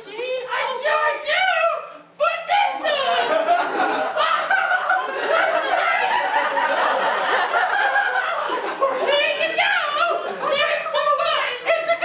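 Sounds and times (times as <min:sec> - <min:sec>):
audience laughing: 0:03.0 - 0:10.7.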